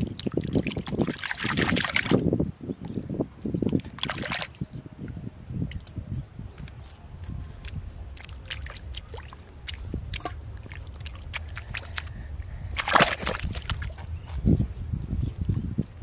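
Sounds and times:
hands squelching in wet mud: 0.0 - 2.3, 3.6 - 4.7, 7.6 - 14.4
hand sloshing out of water: 12.8 - 14.0.

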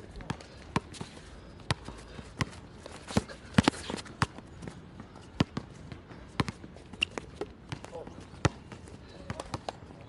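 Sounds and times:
basketball bouncing on court: 5.0 - 5.7, 6.4 - 9.7.

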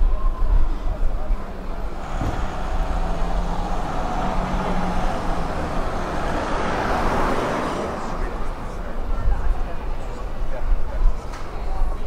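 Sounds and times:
vehicle engine low hum: 0.6 - 9.8.

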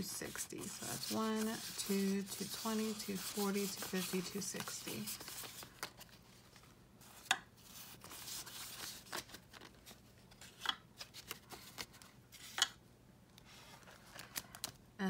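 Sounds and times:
paper banknotes rustling: 0.0 - 12.6, 13.5 - 14.8.

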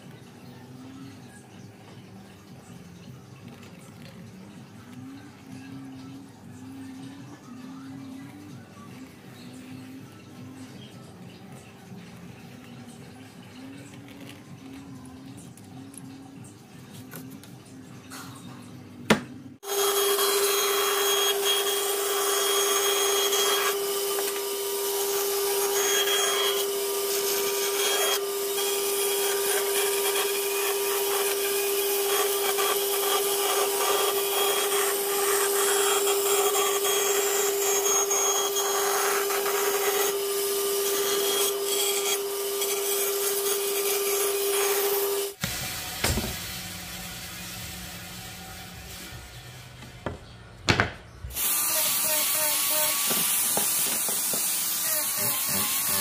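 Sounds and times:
power tool cutting wood: 19.6 - 50.3, 51.3 - 56.0.

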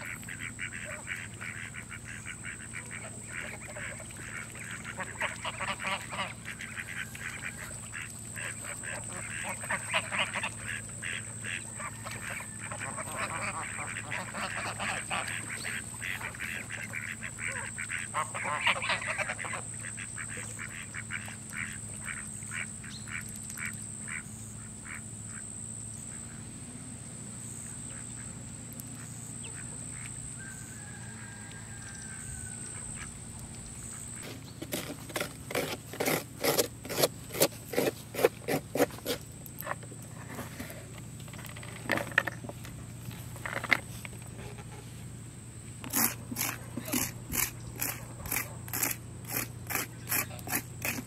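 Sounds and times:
geese calling: 0.0 - 25.4.

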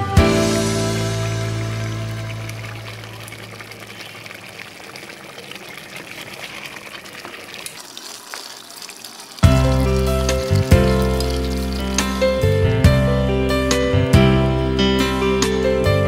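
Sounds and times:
background music: 0.0 - 3.0, 9.4 - 16.0
gravy bubbling and popping: 1.2 - 12.5.

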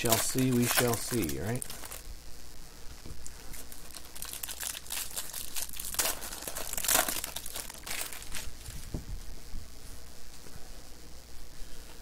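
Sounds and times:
plastic wrapper crinkling: 0.0 - 2.0, 3.2 - 8.9.

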